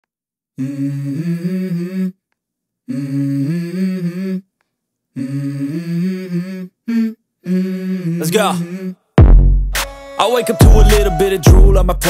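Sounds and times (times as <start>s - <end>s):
person humming a tune: 10.2s - 12.0s.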